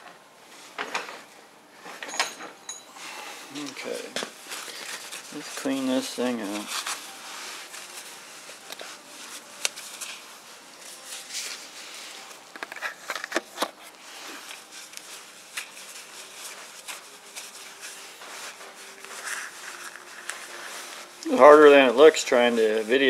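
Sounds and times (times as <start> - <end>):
cloth rag rubbing on plastic: 3.5 - 12.4, 14.1 - 23.0.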